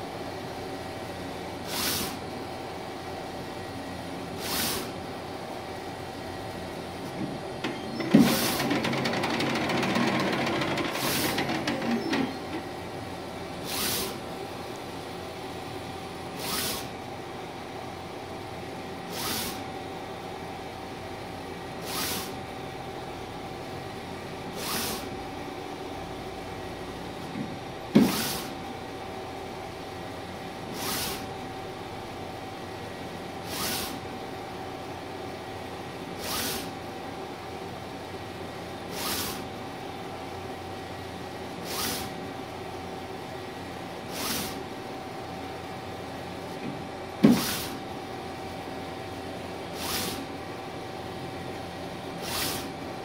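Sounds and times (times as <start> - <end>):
printer machine hum: 6.5 - 16.5.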